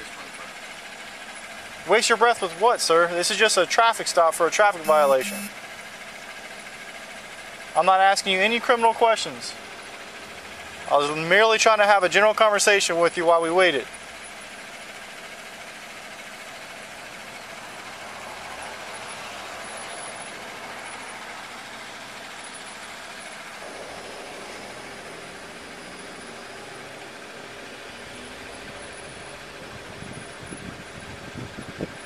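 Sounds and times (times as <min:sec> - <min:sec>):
pickup truck engine idling: 0:00.0 - 0:32.0.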